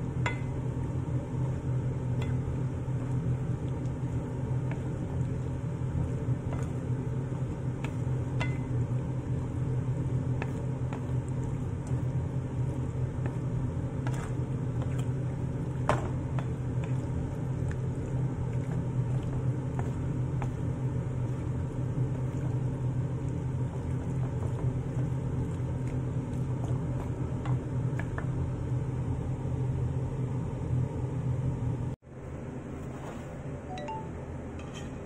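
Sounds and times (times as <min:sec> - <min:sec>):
steady low hum: 0:00.0 - 0:35.0
utensil tapping a frying pan: 0:00.2 - 0:00.6, 0:07.8 - 0:08.8.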